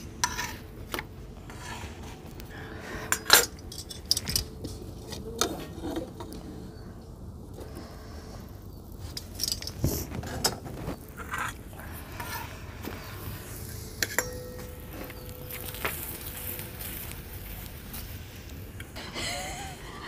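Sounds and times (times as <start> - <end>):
metal spatula scraping griddle: 0.2 - 0.7, 1.5 - 2.3, 10.4 - 17.1
spoons clinking on steel plates: 14.0 - 16.8.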